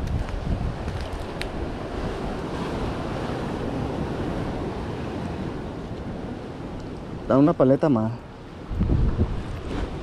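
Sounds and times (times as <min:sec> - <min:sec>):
sea surf washing against rocks: 0:00.0 - 0:10.0
wind buffeting microphone: 0:00.0 - 0:10.0.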